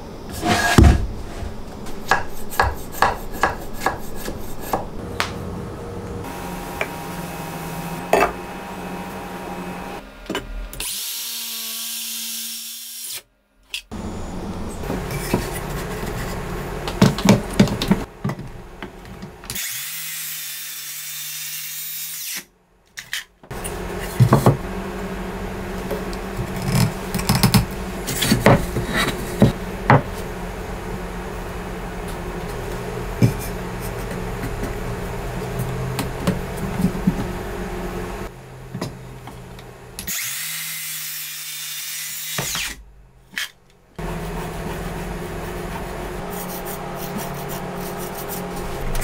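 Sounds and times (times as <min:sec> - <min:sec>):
circular saw cutting wood: 0:40.0 - 0:42.8.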